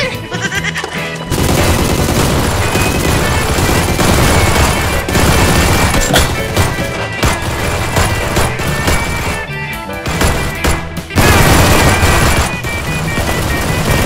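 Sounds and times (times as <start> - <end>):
background music: 0.0 - 14.0
rapid machine-gun fire: 1.3 - 14.0.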